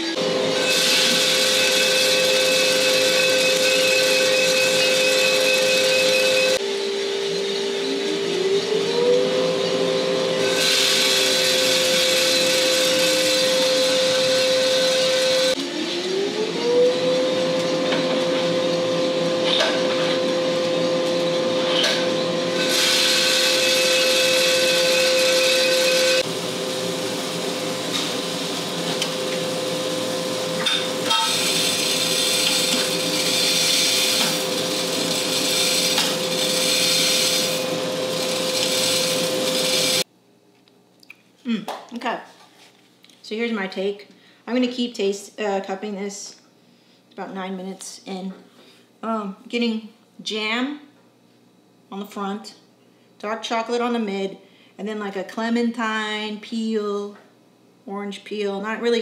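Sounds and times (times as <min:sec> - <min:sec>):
electric motor whine: 0:00.0 - 0:40.0.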